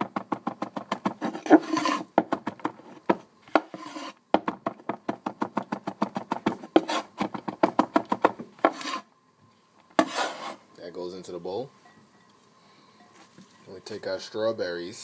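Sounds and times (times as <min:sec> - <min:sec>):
blade scraping board: 0:01.1 - 0:02.1, 0:03.5 - 0:04.2, 0:06.7 - 0:07.2, 0:08.6 - 0:09.1, 0:10.0 - 0:10.6.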